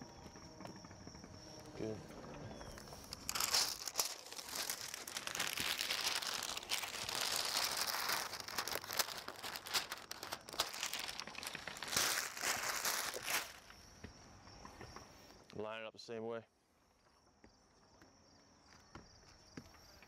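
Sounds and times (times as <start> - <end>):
plastic film crinkling and tearing: 2.8 - 13.7.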